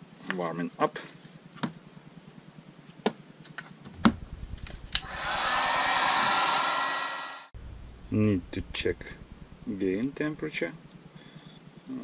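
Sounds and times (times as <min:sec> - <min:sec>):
heat gun blowing hiss: 0:05.0 - 0:07.5.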